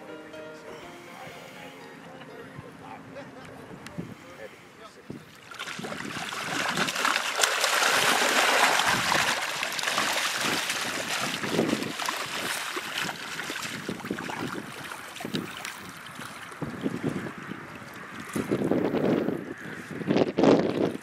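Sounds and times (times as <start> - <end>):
fish splashing in shallow water: 5.3 - 19.2.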